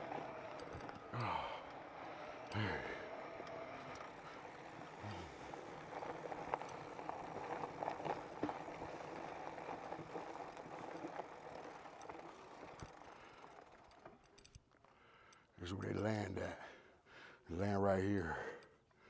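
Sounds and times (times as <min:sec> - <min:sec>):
bike tyres on rough trail: 0:00.0 - 0:17.4
clicks and rattles: 0:11.9 - 0:15.0.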